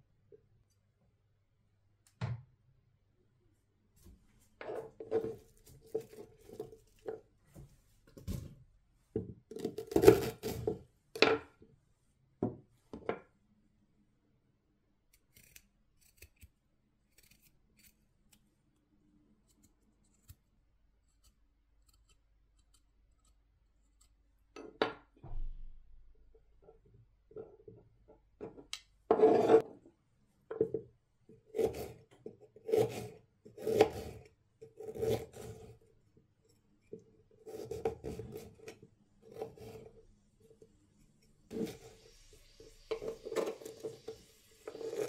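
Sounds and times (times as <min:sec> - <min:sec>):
spoon scraping ginger skin: 0:15.3 - 0:16.5, 0:41.0 - 0:45.0.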